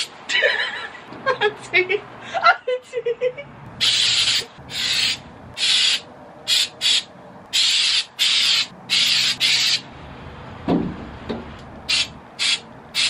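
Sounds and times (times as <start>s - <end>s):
aerosol spray can hissing: 7.6s - 9.8s, 11.9s - 13.0s.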